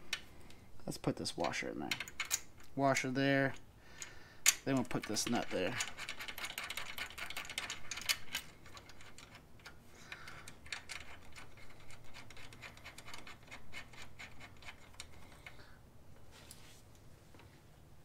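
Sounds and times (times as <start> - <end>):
nut and washer metallic clicks: 1.4 - 2.8, 4.4 - 15.2.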